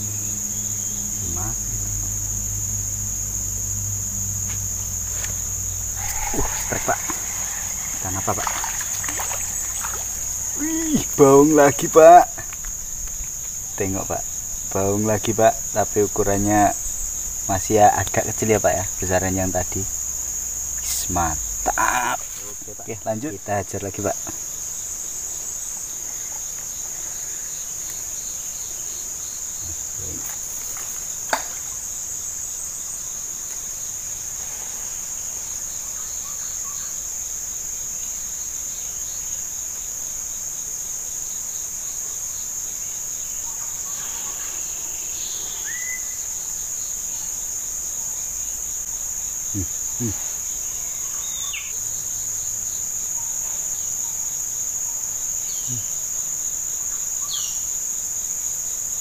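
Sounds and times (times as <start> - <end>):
high-pitched insect drone: 0.0 - 33.3, 35.1 - 59.0.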